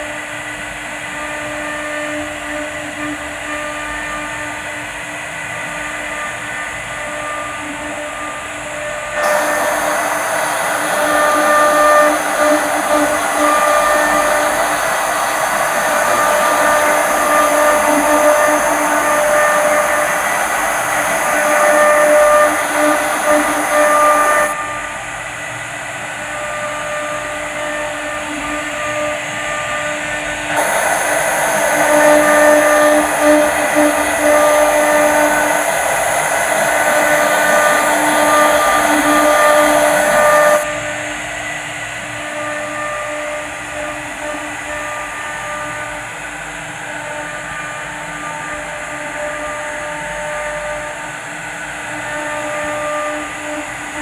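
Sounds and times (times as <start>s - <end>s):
router spindles whining: 1.0s - 41.1s
bits cutting wood: 9.2s - 24.5s.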